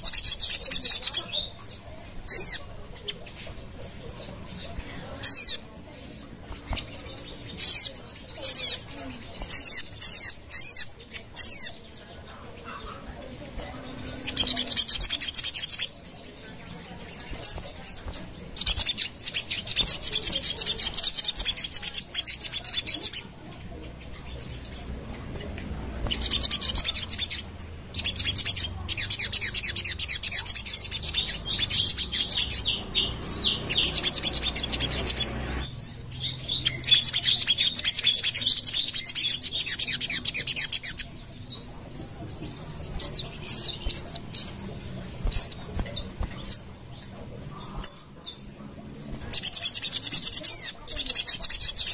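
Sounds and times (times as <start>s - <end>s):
bird chattering trills: 0.0s - 12.0s, 12.6s - 24.8s, 25.4s - 51.9s.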